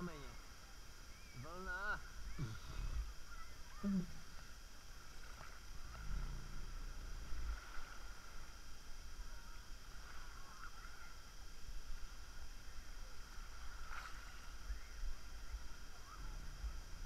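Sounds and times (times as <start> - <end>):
low rumbling buffeting: 0.0 - 17.0
waves sloshing and splashing: 4.3 - 17.0.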